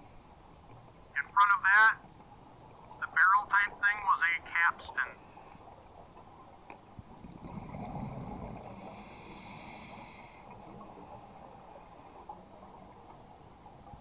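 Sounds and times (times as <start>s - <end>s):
underwater regulator bubbles: 6.9s - 14.0s
regulator inhale hiss: 8.6s - 10.6s.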